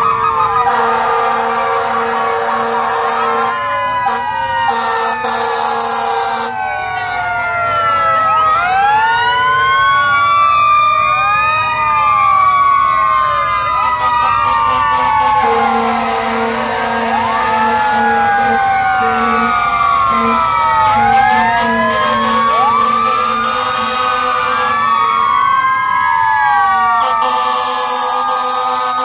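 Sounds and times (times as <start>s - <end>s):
fire engine sirens wailing: 0.0s - 29.0s
low horn blasts: 0.7s - 6.6s, 13.5s - 24.9s.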